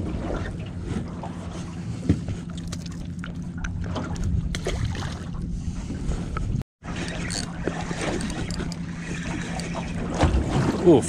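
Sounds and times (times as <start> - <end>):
low hum: 0.0 - 10.8
water moving around hull: 0.0 - 11.0.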